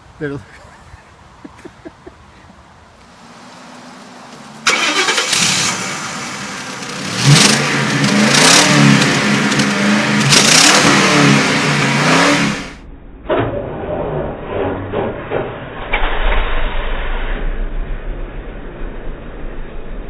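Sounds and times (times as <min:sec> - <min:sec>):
car engine revving hard: 0:04.6 - 0:12.8.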